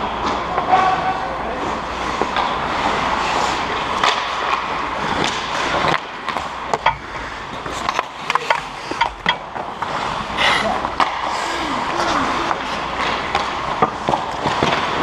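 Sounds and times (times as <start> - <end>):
hockey sticks and puck clacking: 0.0 - 15.0.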